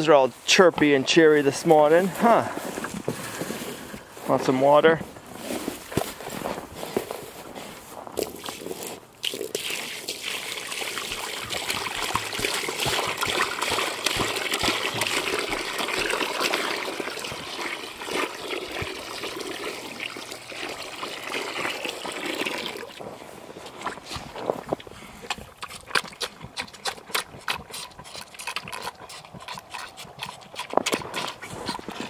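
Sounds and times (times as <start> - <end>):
hose water splashing into pan: 9.2 - 23.0.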